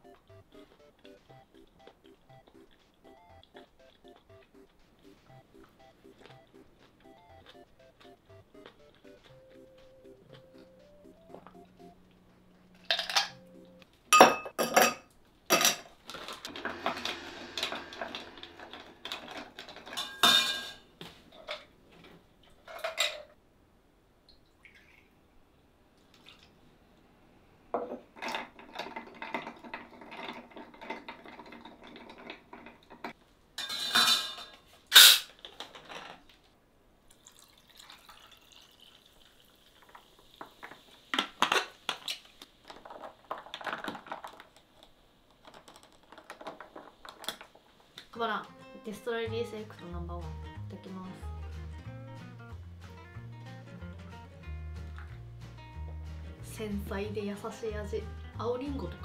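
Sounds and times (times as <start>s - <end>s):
liquid pouring: 37.1s - 40.5s
soda water fizzing: 37.1s - 41.2s.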